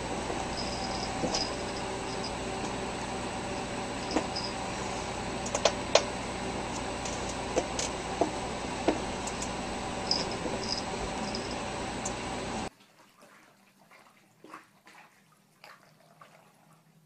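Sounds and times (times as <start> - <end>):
faint hum: 0.0 - 12.7.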